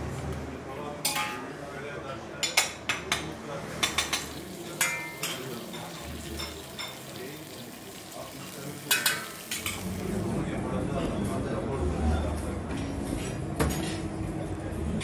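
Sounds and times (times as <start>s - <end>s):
metal cooking utensils clinking: 1.0s - 1.5s, 3.8s - 10.0s
food sizzling: 4.0s - 10.3s.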